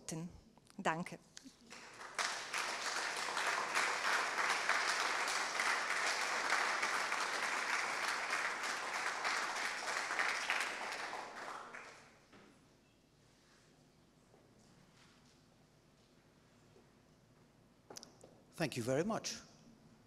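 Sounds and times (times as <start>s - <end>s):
audience applauding: 1.6s - 12.3s.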